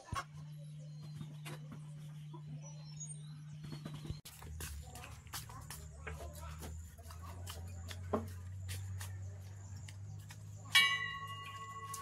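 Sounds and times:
sharp metallic clang: 10.7s - 12.0s.

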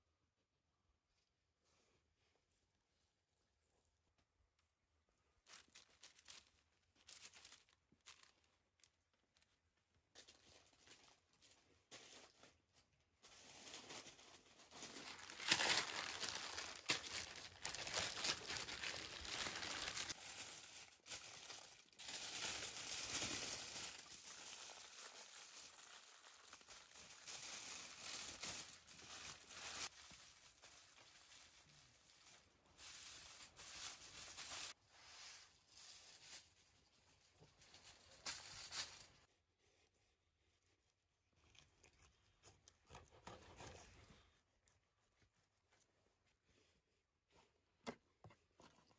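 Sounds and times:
paper and foil crinkling: 5.3s - 39.3s.

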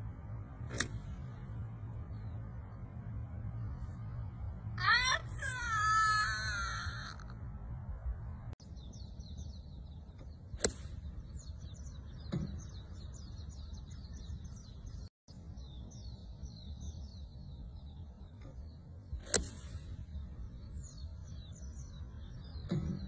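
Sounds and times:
low outdoor rumble: 0.0s - 23.0s
golf club striking ball: 0.6s - 1.3s, 10.6s - 11.5s, 19.2s - 19.9s
woman exclaiming: 4.8s - 7.3s
birds chirping: 8.3s - 23.0s.

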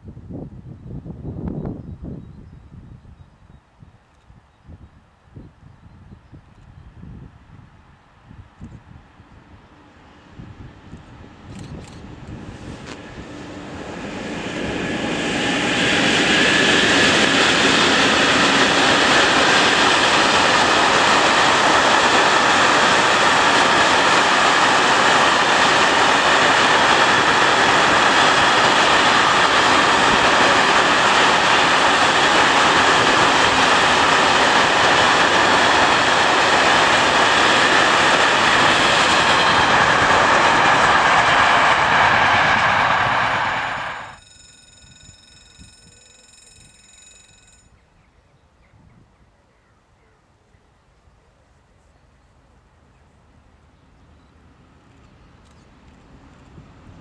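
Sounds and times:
freight train wheels on rails: 8.4s - 47.6s.

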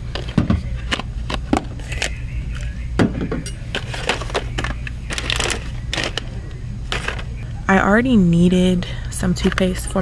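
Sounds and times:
steady low hum: 0.0s - 10.0s
plastic bottles knocking and crinkling: 0.1s - 2.1s, 3.0s - 6.3s, 6.9s - 7.3s.

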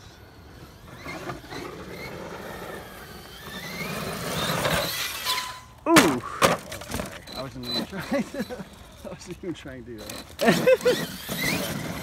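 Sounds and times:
electric motor whining: 0.0s - 5.8s, 9.9s - 12.0s
toy truck crashing on dirt: 0.5s - 9.0s, 10.0s - 12.0s
person exclaiming: 5.8s - 6.4s.

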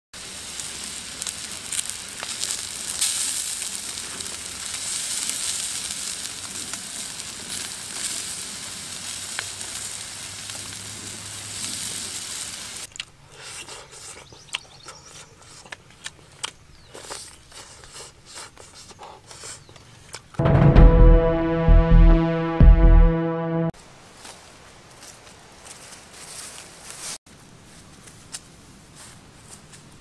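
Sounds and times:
food sizzling on hot stone: 0.2s - 12.9s.

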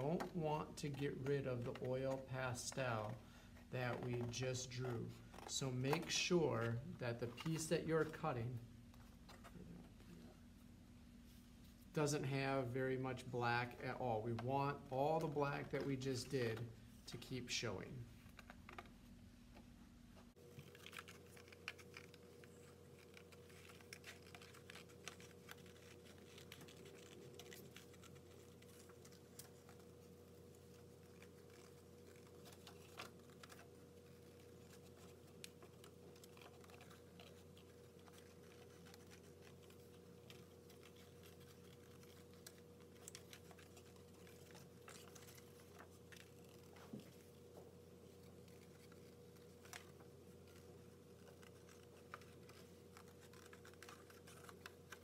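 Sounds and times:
scissors cutting paper: 20.5s - 55.0s.

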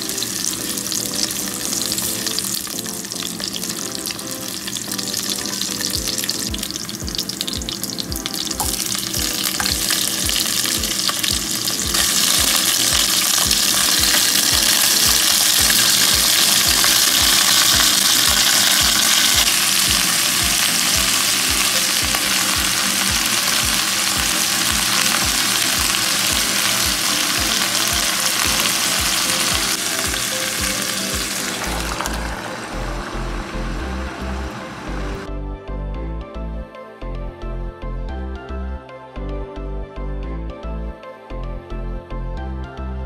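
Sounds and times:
meat sizzling in hot oil: 0.0s - 35.2s
spatula turning meat: 4.6s - 33.8s.

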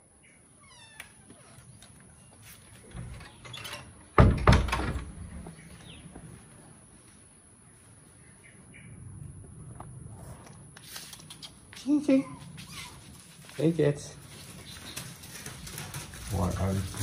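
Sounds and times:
wooden door knocking shut: 4.2s - 5.0s.

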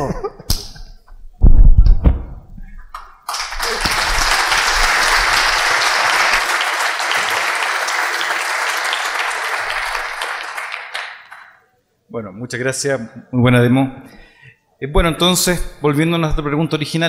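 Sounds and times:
audience applauding: 2.9s - 11.6s.

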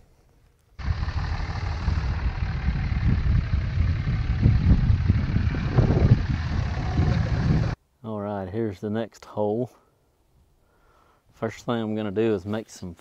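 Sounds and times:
pickup truck engine rumble: 0.8s - 7.8s.

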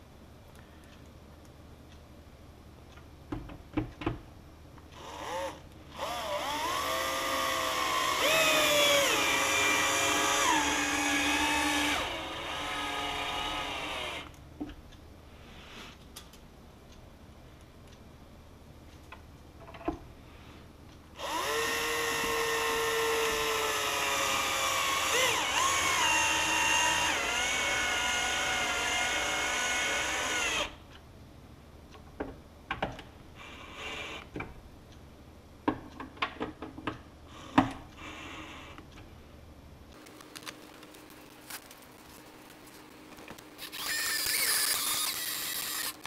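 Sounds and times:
drill-driver driving screws: 5.0s - 14.3s, 21.2s - 30.8s, 43.6s - 46.0s.

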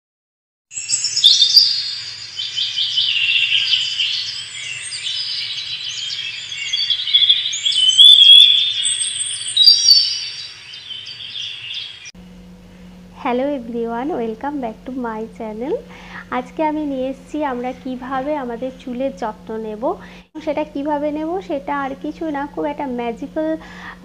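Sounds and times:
birds chirping and singing: 0.7s - 12.2s.

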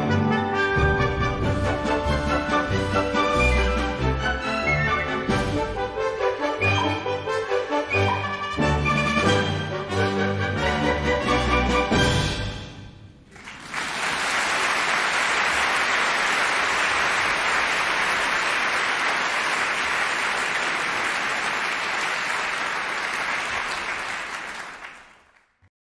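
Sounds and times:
audience applauding: 13.3s - 25.6s.

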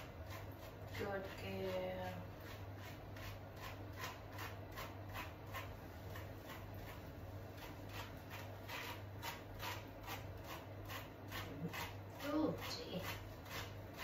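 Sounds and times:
wet rubbing of fur: 0.0s - 14.0s.

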